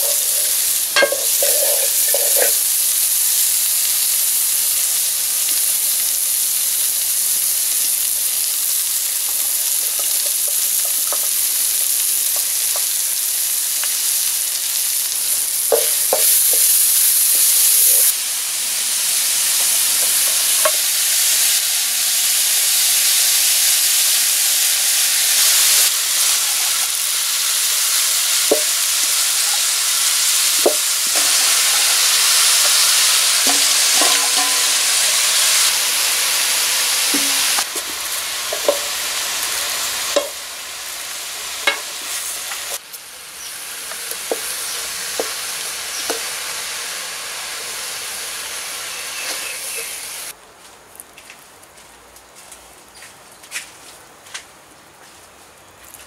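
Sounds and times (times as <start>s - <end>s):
metal clinking against pan: 0.0s - 2.6s, 33.5s - 34.8s
cabbage sizzling in a wok: 0.0s - 50.4s.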